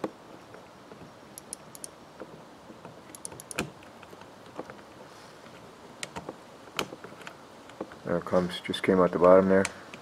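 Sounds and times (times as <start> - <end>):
metal pin clicking and tapping: 1.4 - 2.0, 3.1 - 3.7.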